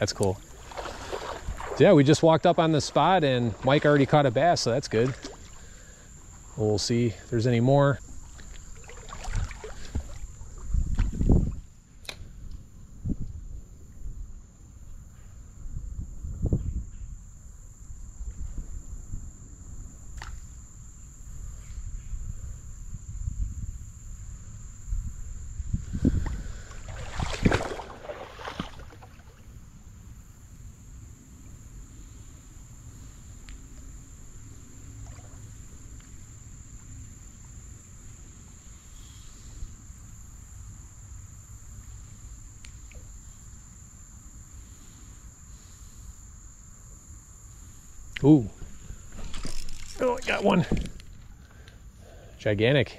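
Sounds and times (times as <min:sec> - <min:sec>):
water sloshing and splashing: 0:00.2 - 0:06.5, 0:08.1 - 0:11.6, 0:26.2 - 0:29.5, 0:34.9 - 0:35.6, 0:49.1 - 0:51.2.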